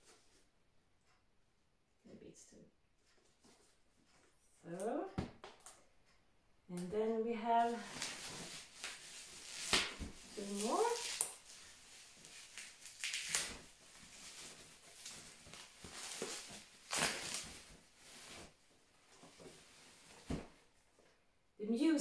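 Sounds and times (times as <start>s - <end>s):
plastic and bubble wrap rustling: 7.4s - 20.9s.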